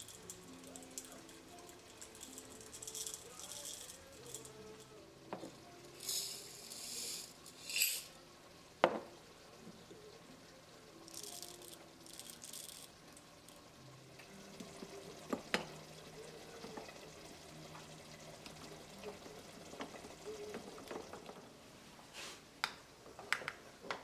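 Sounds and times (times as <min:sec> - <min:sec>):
pepper mill parts clicking: 0:00.0 - 0:04.6, 0:06.0 - 0:08.1, 0:11.1 - 0:13.6
peppercorns rattling into glass: 0:00.0 - 0:05.0, 0:06.0 - 0:08.2, 0:11.1 - 0:13.6.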